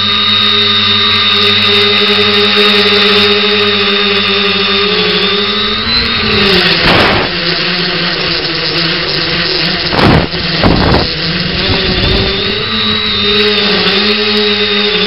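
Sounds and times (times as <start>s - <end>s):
drone motors and propellers whining: 0.0s - 15.0s
noisy rushes of air: 4.8s - 8.0s.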